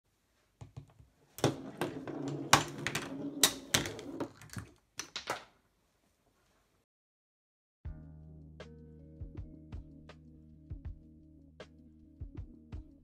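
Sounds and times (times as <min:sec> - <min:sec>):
balls knocking against plastic: 0:00.6 - 0:05.5
balls rolling on plastic track: 0:01.4 - 0:05.4.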